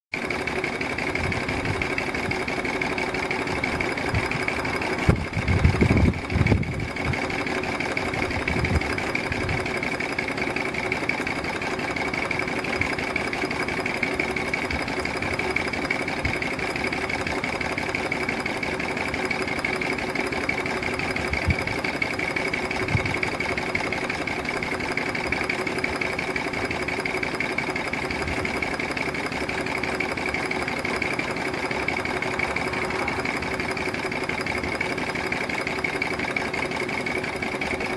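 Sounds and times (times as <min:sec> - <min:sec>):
steam engine beat: 0:00.5 - 0:37.9
steady high tone: 0:29.3 - 0:36.6.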